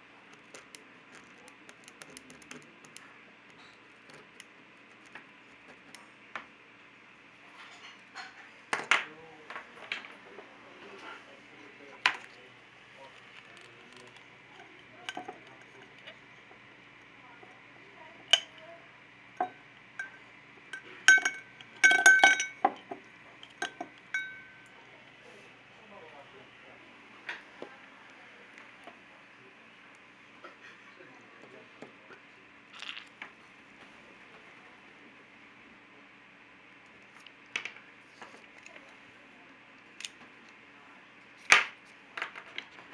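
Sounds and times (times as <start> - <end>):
brush clinking against glass: 19.4 - 24.7.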